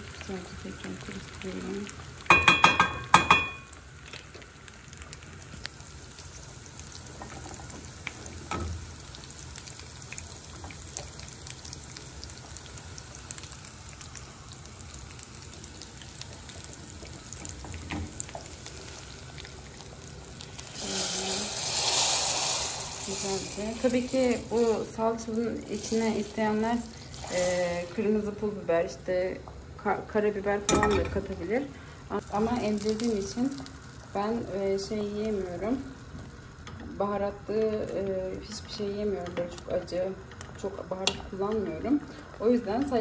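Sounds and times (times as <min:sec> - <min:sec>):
soup hissing: 0:20.6 - 0:25.0, 0:25.6 - 0:28.0.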